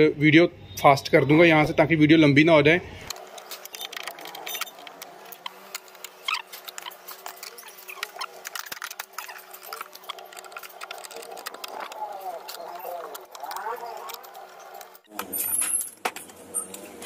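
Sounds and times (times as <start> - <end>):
small clicks taps and scrapes: 3.1 - 15.3.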